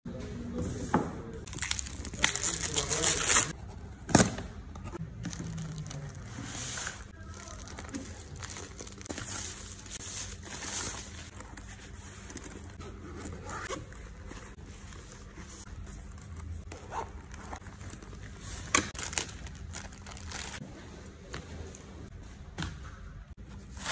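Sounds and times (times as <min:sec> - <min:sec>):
plastic wrap tearing and crinkling: 0:01.5 - 0:03.6, 0:05.2 - 0:11.4, 0:18.8 - 0:20.6
cardboard and plastic rustling: 0:01.5 - 0:20.6.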